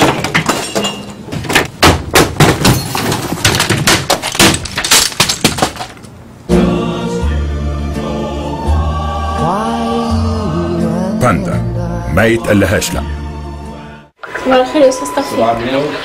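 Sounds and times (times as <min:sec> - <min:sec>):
computer and objects crashing: 0:00.0 - 0:06.1
music: 0:06.5 - 0:14.2.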